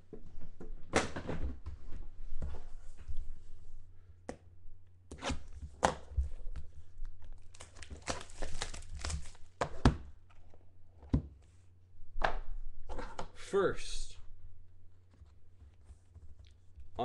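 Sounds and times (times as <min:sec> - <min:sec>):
plastic shrink-wrap tearing: 0:07.3 - 0:09.6.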